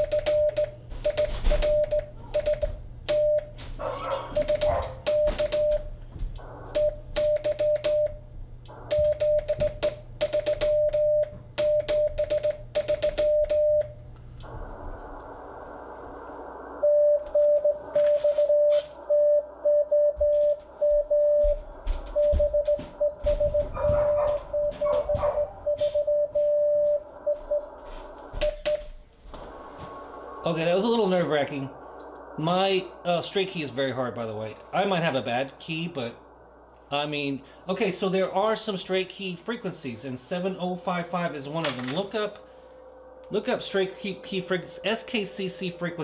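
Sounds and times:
morse code tone: 0.0s - 3.6s, 4.3s - 5.9s, 6.6s - 14.0s, 16.8s - 28.9s
radio receiver hiss: 14.0s - 23.4s, 25.6s - 46.0s.

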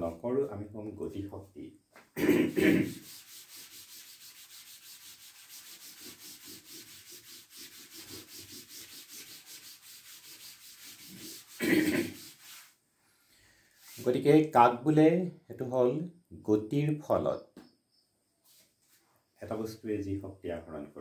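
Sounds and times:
duster rubbing chalkboard: 2.2s - 12.8s, 13.8s - 14.2s.

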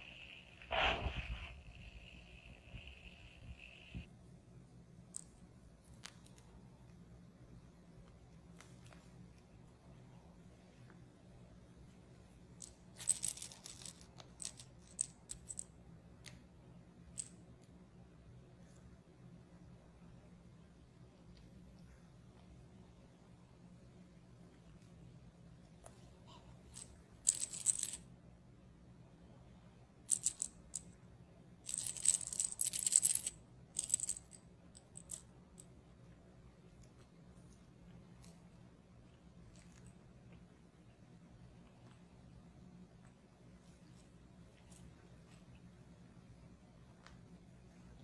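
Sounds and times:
toy rattling: 12.6s - 15.7s, 26.6s - 28.0s, 30.1s - 31.0s, 31.6s - 35.7s.

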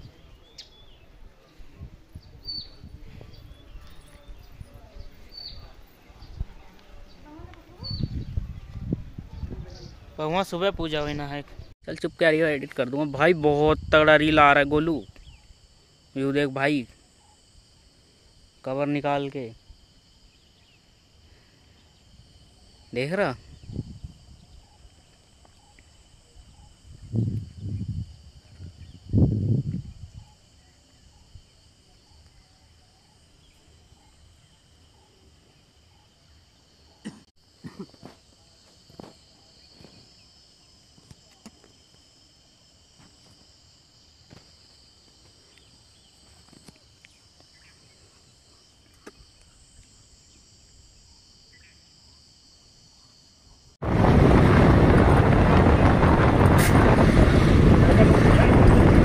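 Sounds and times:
insects chirring: 0.0s - 59.0s.

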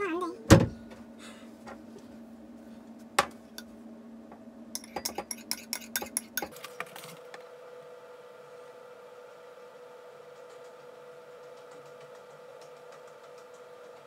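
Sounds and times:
metal spoon clinking glass: 4.8s - 6.5s.

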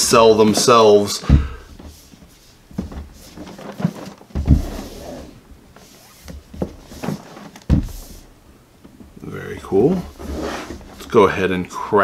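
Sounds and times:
cardboard box knocks and rubbing: 2.7s - 5.0s, 6.2s - 8.2s
cardboard box thump: 3.8s - 4.8s.

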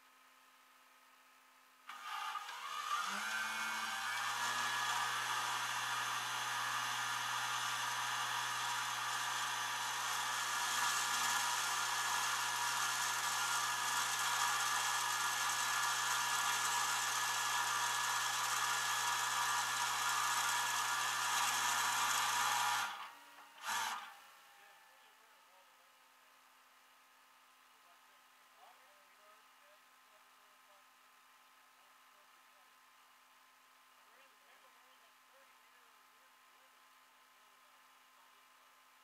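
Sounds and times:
hydraulic winch whining: 1.9s - 24.2s.

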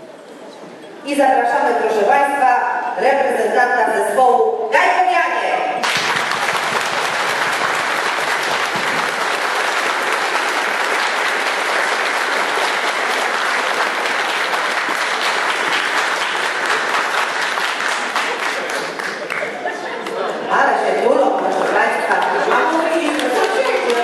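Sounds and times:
crowd applauding: 5.8s - 20.2s, 21.5s - 24.0s.

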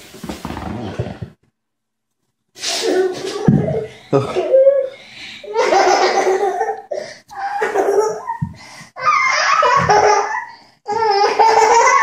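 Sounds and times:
child laughing: 2.8s - 8.5s, 9.2s - 12.0s.

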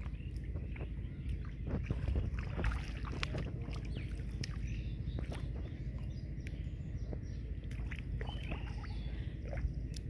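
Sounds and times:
muddy water splashing: 0.0s - 10.0s
steady low rumble: 0.0s - 10.0s
faint bird chirps: 3.7s - 10.0s.

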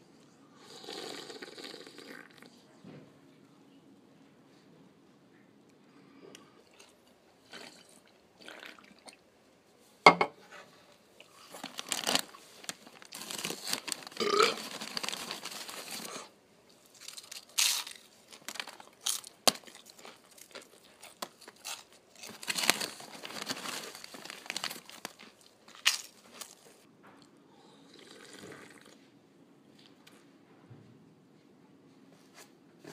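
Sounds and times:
snack wrapper crinkling: 11.3s - 26.8s
crunchy chewing: 13.1s - 26.8s.

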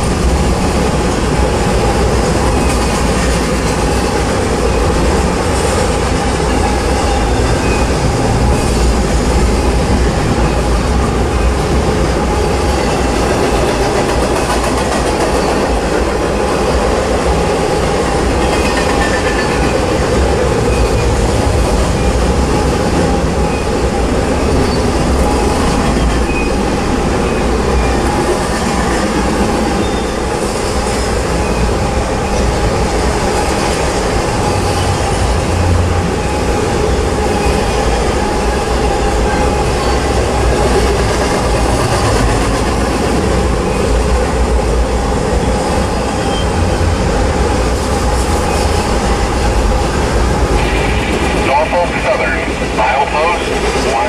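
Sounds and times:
train wheels rumbling on rails: 0.0s - 54.0s.

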